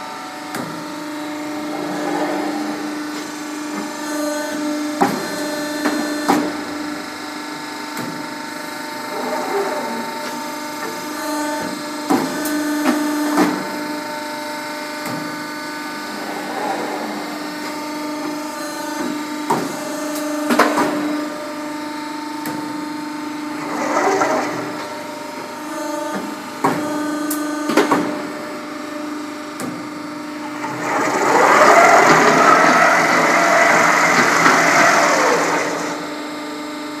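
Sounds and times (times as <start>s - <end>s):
hydraulic pump humming: 0.0s - 7.4s, 8.9s - 14.9s, 15.6s - 36.6s
feeding machine moving plate: 23.6s - 25.0s, 30.4s - 36.1s.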